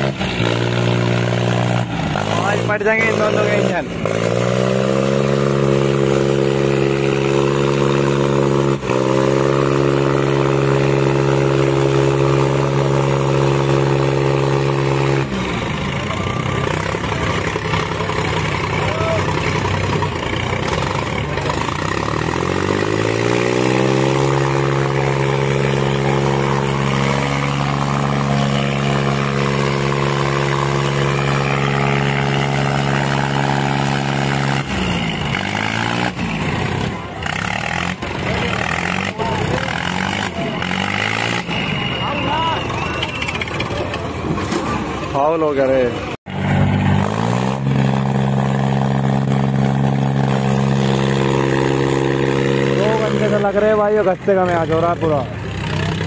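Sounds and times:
tractor engines straining: 0:00.0 - 0:56.0.

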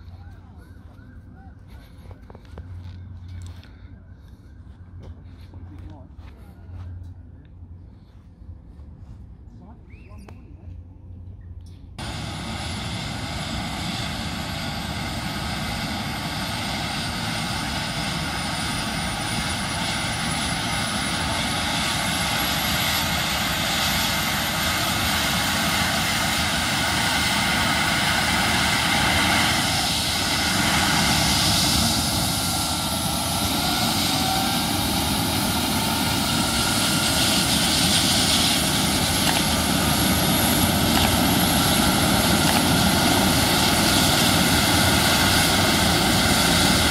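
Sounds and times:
helicopter rotor spinning up: 0:12.0 - 0:46.9
helicopter turbine whine: 0:12.0 - 0:46.9.

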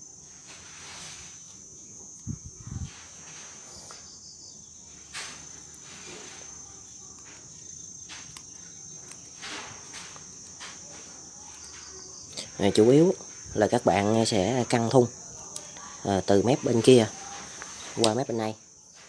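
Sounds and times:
crickets chirring: 0:00.0 - 0:19.0.

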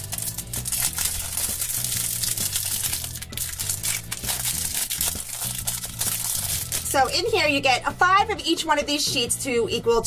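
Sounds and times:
plastic wrapper crinkling: 0:00.0 - 0:07.3
background music: 0:00.0 - 0:10.0.

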